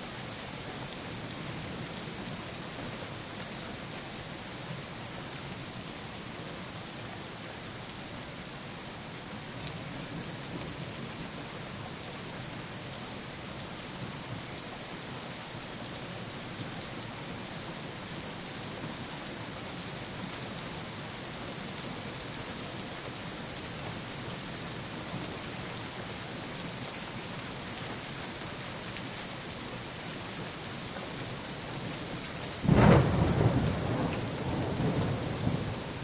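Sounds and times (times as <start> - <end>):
steady rain hiss: 0.0 - 36.0
low thunder rumble: 32.7 - 35.8.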